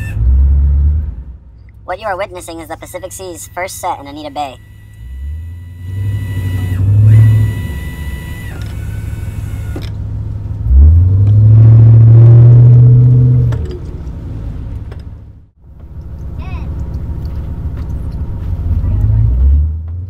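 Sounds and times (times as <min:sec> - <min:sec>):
boat engine humming: 0:00.0 - 0:19.5
high whine: 0:01.7 - 0:10.0.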